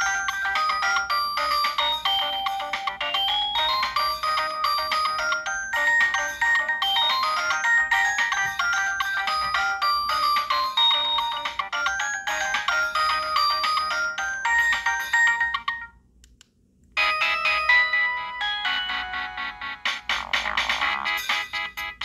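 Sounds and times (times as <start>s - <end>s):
mobile phone ringtone: 0.0s - 16.0s, 17.0s - 20.3s.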